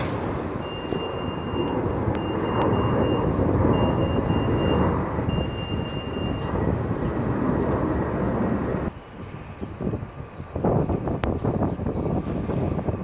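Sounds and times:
jet airliner roar: 0.0 - 13.0
high beep pulses: 0.6 - 6.5.

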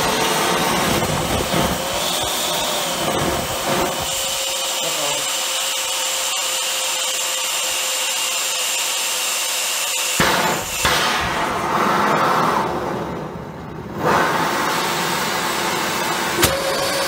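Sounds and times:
burner combustion roar: 0.0 - 6.4, 10.2 - 17.0
air jet hissing with whistle: 0.0 - 10.9
burner igniting whump: 0.8 - 4.2, 10.2 - 12.7.

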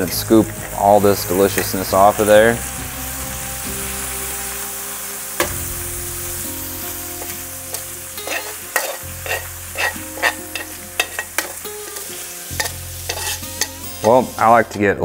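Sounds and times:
liver and onions sizzling in pan: 0.0 - 15.0
metal utensil scraping a pan: 6.9 - 15.0.

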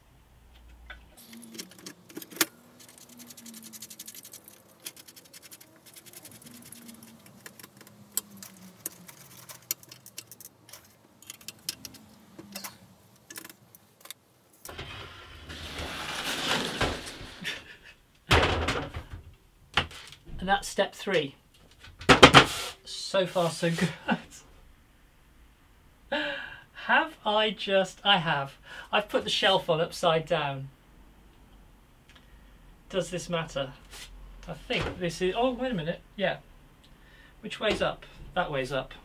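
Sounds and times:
wooden frame scraping: 1.2 - 13.6, 14.7 - 17.8
metal hardware clinking: 1.2 - 14.2.

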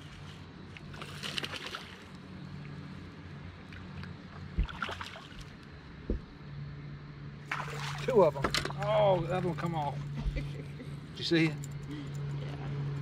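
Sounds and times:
electric boat motor humming: 0.0 - 13.0
dull thumps on deck: 6.0 - 6.3.

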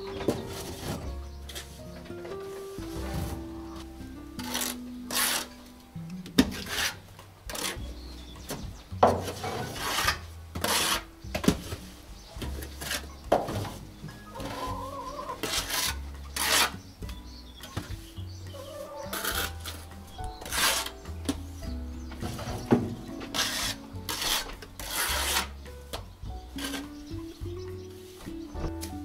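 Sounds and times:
background music: 0.0 - 29.0
trowel scraping mortar on wall: 4.4 - 5.6, 6.4 - 7.9, 9.1 - 11.8, 12.4 - 13.2, 14.7 - 16.8, 19.0 - 21.0, 23.2 - 27.2.

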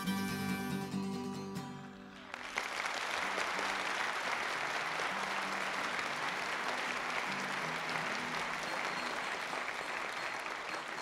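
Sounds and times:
audience applauding: 2.0 - 11.0.

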